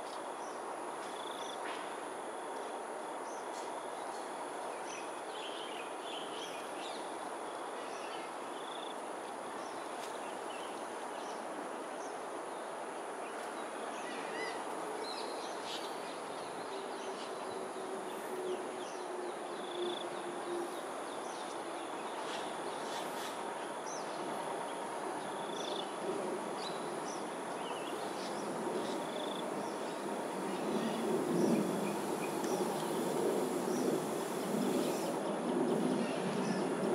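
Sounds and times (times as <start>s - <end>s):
background noise wash: 0.0s - 36.9s
high insect buzz: 28.1s - 35.2s.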